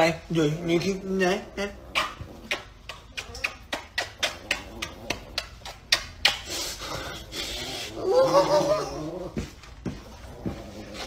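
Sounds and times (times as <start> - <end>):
man kissing dog lip smacks: 2.0 - 6.8.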